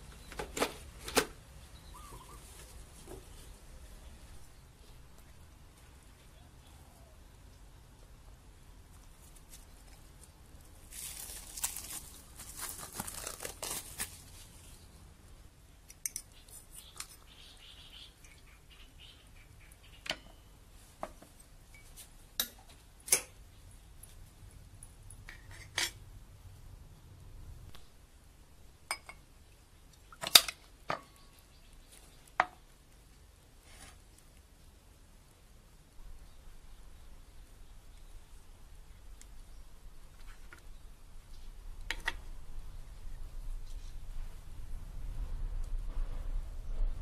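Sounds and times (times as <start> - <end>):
cling film crinkling: 9.2 - 14.8.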